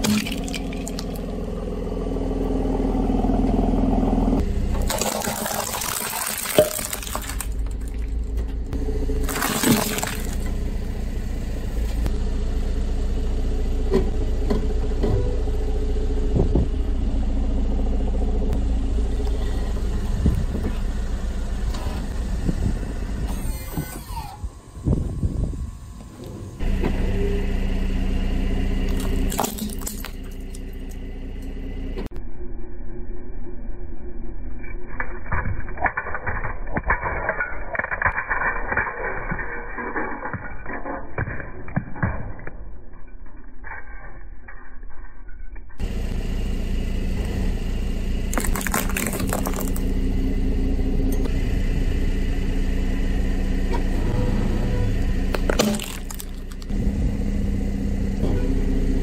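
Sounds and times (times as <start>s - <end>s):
car engine low hum: 0.0s - 34.6s, 45.7s - 59.0s
plastic cracking under tyre: 48.3s - 49.9s, 55.3s - 56.7s.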